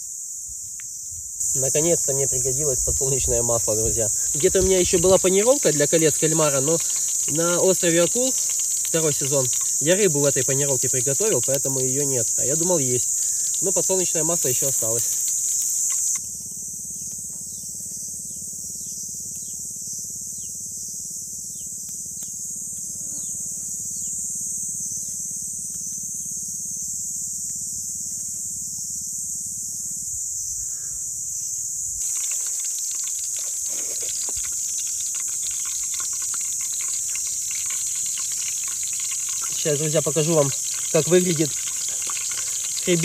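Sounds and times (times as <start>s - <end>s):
cicadas droning: 0.0s - 43.0s
crackling hiss: 0.6s - 16.3s, 32.0s - 43.0s.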